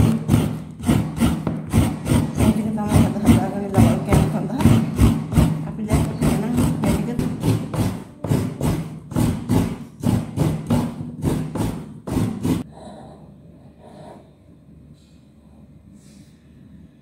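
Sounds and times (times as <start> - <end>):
rhythmic knocking: 0.0 - 12.7.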